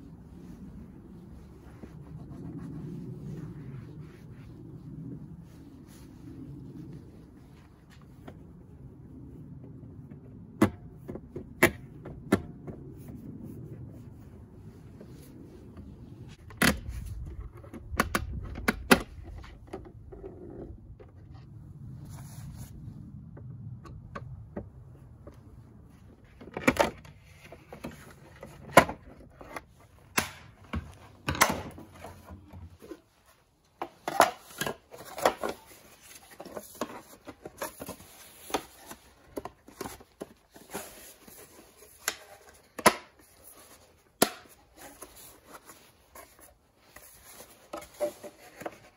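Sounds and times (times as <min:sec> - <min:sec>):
low steady rumble: 0:00.0 - 0:26.4.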